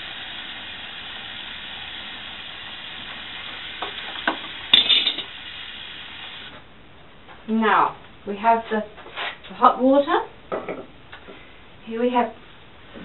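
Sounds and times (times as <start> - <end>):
tap water running into metal pot: 0.0 - 6.5.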